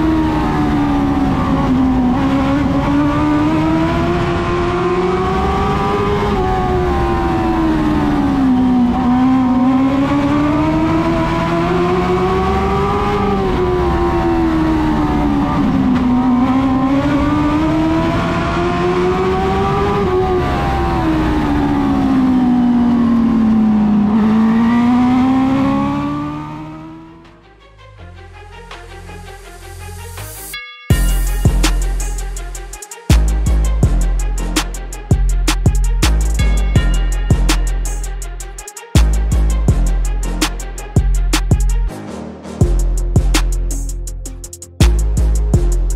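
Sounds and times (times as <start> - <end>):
racing motorcycle engine revving: 0.0 - 27.4.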